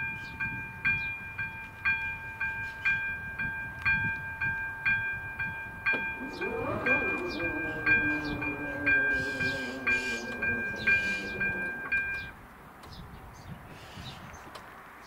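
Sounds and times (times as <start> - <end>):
level crossing warning bell: 0.0 - 12.4
low motor hum: 6.0 - 12.3
bird chirps: 6.2 - 12.3.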